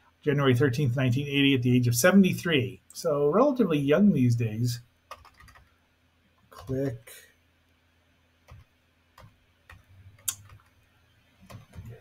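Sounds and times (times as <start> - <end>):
computer keys clicking: 5.1 - 5.7, 8.5 - 10.8, 11.4 - 12.0.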